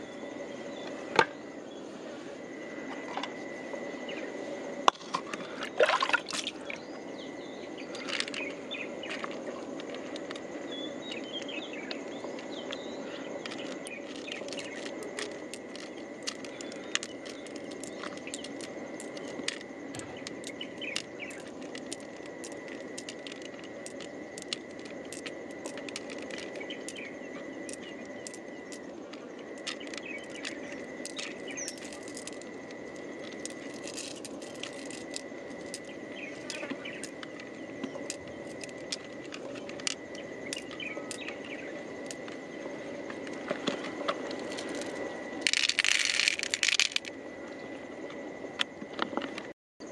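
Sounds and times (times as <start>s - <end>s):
constant high thin tone: 0.0s - 49.9s
pearls clicking together: 12.4s - 42.4s, 44.2s - 47.2s.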